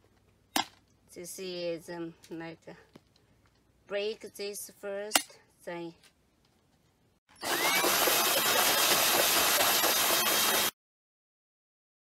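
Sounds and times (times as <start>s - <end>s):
power drill hole saw cutting plastic: 7.3s - 10.8s.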